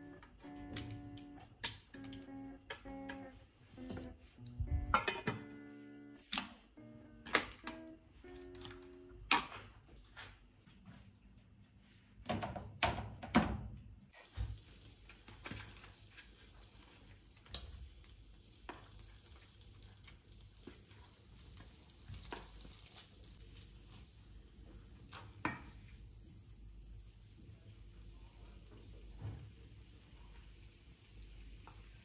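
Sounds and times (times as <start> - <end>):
tofu sizzling in oil: 14.2 - 27.9.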